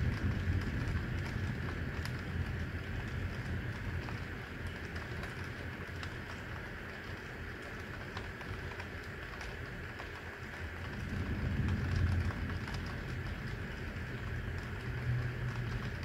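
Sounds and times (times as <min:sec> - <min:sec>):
dripping ticks: 0:00.0 - 0:16.0
heavy rain hiss: 0:00.0 - 0:16.0
low rumble: 0:10.8 - 0:16.0.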